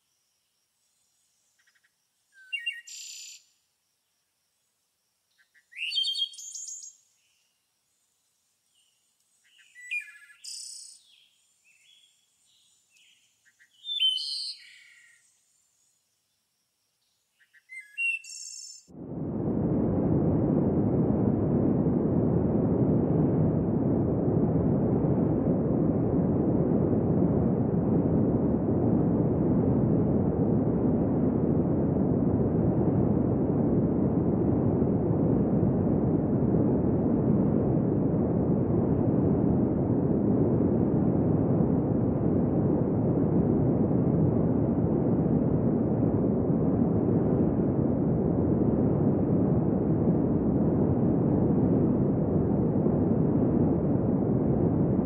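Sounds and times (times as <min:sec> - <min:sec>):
deep muffled rushing noise: 0:19.0 - 0:55.0.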